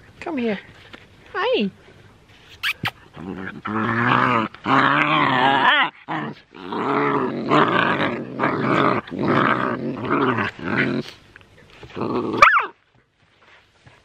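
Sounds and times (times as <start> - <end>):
puppies growling: 2.8 - 12.6.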